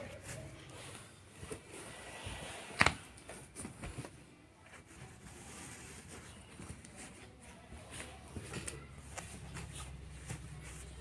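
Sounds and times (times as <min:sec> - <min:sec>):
bed rustling: 0:00.0 - 0:11.0.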